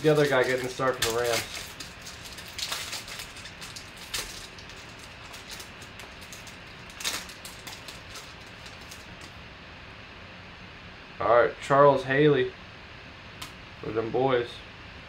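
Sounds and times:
foil wrapper crinkling and tearing: 0.0s - 9.3s.

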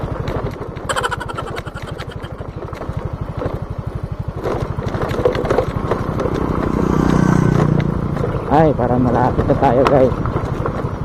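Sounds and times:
motorcycle engine running: 2.3s - 11.0s.

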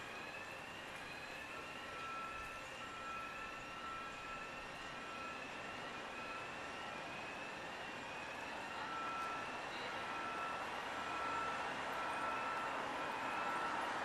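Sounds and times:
city noise: 0.0s - 14.0s
distant whooping alarm: 10.0s - 14.0s.

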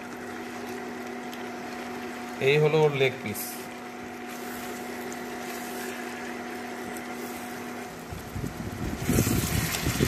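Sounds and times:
cooling fan humming and whining: 0.0s - 10.0s
spatula stirring in a pan: 3.8s - 7.9s.

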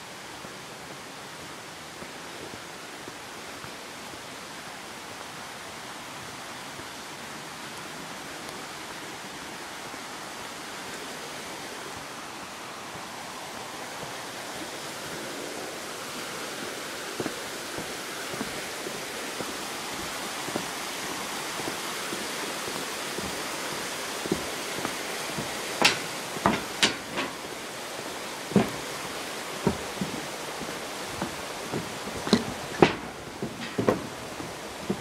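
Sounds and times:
steady rushing hiss: 0.0s - 35.0s
footsteps on wooden boards: 16.1s - 35.0s.

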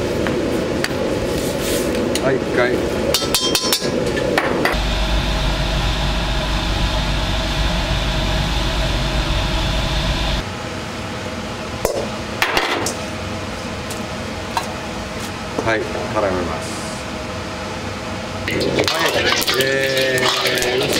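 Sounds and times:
gas burner rumbling: 2.0s - 13.6s.

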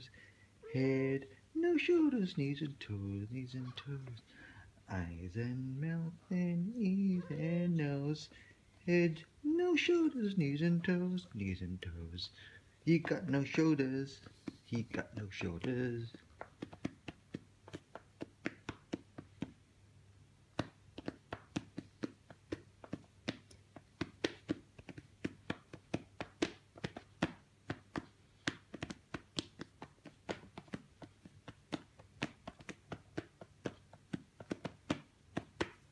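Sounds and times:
soft pats on cat's belly: 12.9s - 19.6s.

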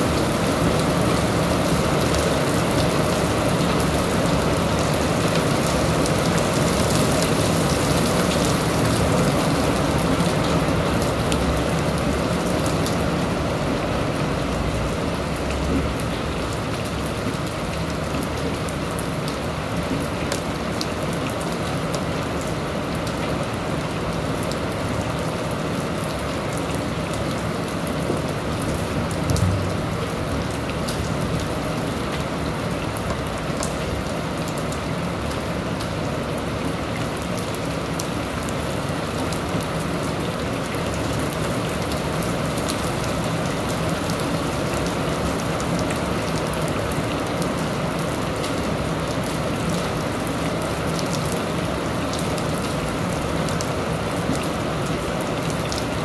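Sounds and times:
steady rainfall: 0.0s - 56.0s
low thump: 29.3s - 30.6s.

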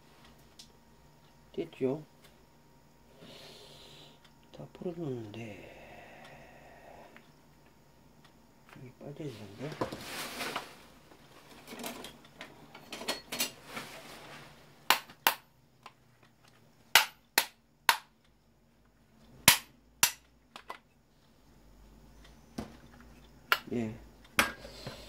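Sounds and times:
scraping rustle: 9.3s - 12.0s, 13.5s - 14.6s.

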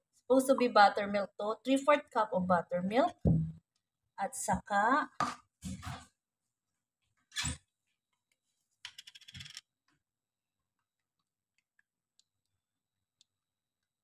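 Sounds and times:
knock: 3.2s - 3.6s.

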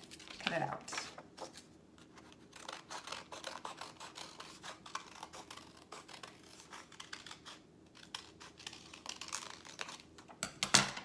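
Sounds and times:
scissors snipping paper: 2.2s - 10.3s.

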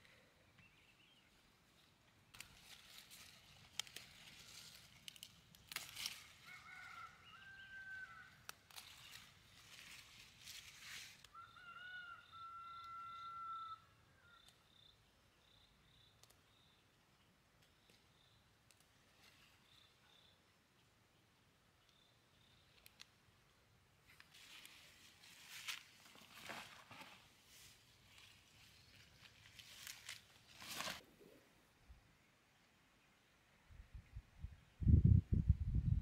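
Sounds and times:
rooster crowing faintly: 6.1s - 8.5s.

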